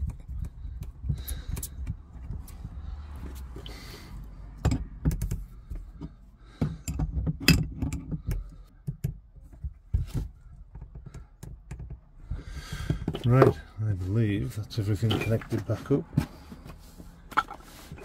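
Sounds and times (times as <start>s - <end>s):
pipe fittings clicking and knocking: 0.0s - 4.0s, 4.6s - 13.8s.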